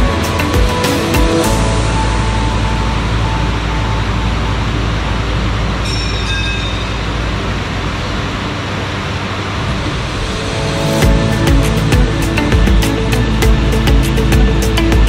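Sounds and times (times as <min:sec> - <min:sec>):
brief high whine: 0:09.2 - 0:13.0.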